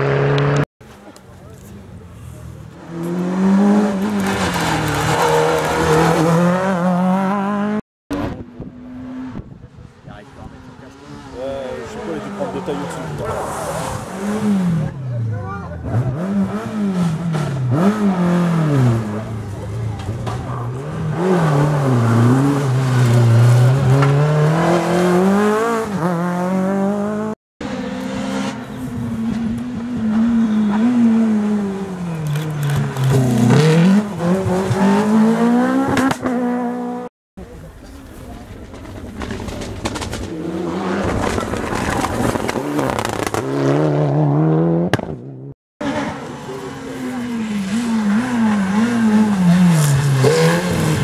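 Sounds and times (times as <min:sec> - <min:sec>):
rally car engine at high revs: 0:02.8 - 0:09.6, 0:10.4 - 0:37.1, 0:39.2 - 0:51.0
rally car engine accelerating: 0:10.4 - 0:51.0.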